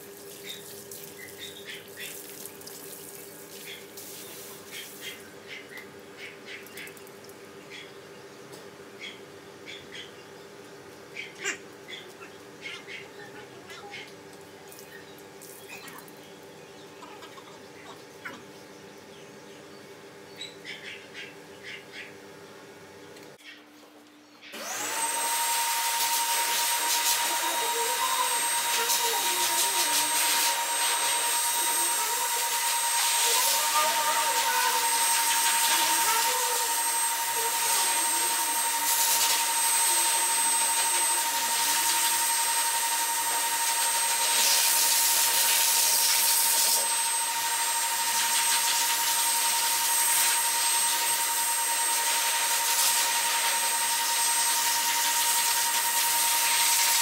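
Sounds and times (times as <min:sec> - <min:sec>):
grooming dryer blowing with high whine: 0:24.6 - 0:57.0.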